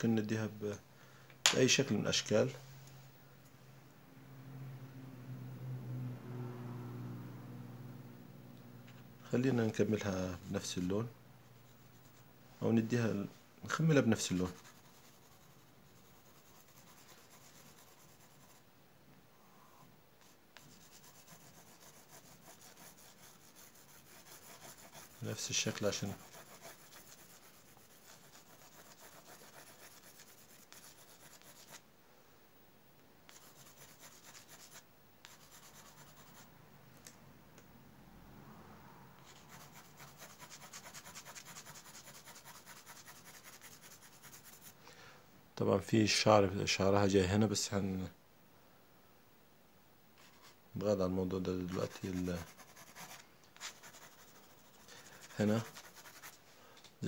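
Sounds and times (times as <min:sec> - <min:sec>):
pencil scratching on paper: 0:13.8 - 0:18.6, 0:20.2 - 0:31.8, 0:33.3 - 0:36.4, 0:39.2 - 0:44.8, 0:51.4 - 0:56.4.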